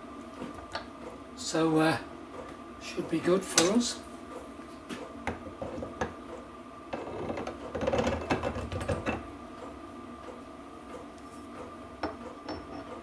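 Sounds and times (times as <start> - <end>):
metal tapping: 12.0 - 13.0.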